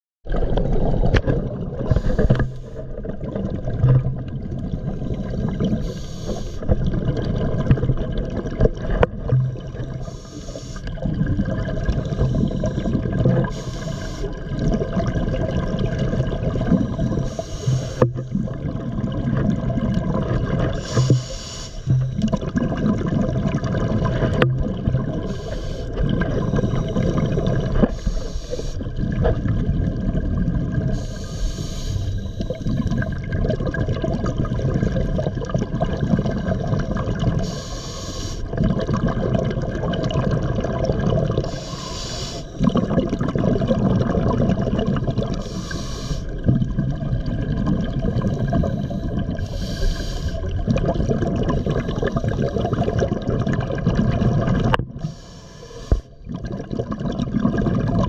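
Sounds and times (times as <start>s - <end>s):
bubbling exhalations: 0.3s - 37.6s, 38.4s - 55.2s, 55.8s - 58.0s
regulator inhalation hiss: 1.9s - 2.8s, 5.8s - 6.7s, 10.0s - 10.9s, 13.5s - 14.4s, 17.1s - 18.0s, 20.8s - 22.0s, 25.3s - 27.0s, 27.9s - 28.8s, 31.0s - 32.6s, 37.4s - 38.5s, 41.5s - 42.6s, 45.4s - 46.4s, 48.7s - 50.4s, 55.0s - 56.1s.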